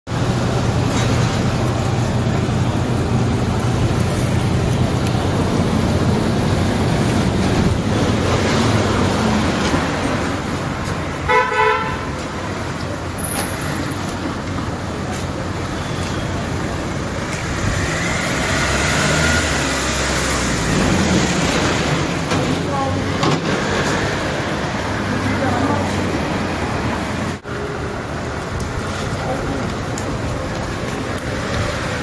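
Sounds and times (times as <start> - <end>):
street traffic noise: 0.1 - 32.0
vehicle horn toots: 11.3 - 12.2.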